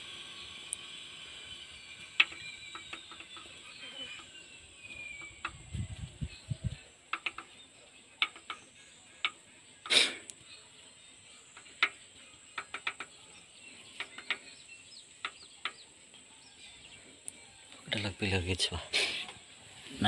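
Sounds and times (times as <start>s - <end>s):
tools tapping on metal: 8.2s - 9.4s.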